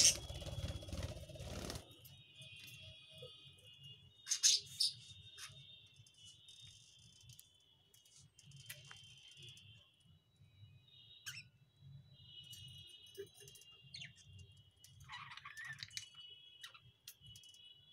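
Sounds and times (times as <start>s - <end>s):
budgerigars warbling and chattering: 0.0s - 1.2s
sharp bird chirps: 0.0s - 1.8s.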